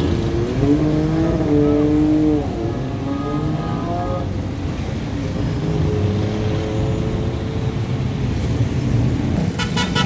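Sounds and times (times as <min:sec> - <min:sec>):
street traffic engines running: 0:00.0 - 0:10.0
vehicle horn short toots: 0:09.5 - 0:10.0.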